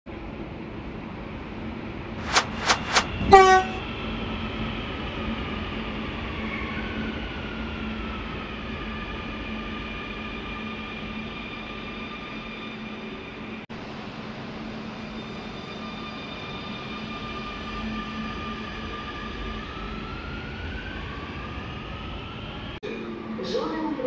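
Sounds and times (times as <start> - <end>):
train horn toot: 3.2 - 3.8.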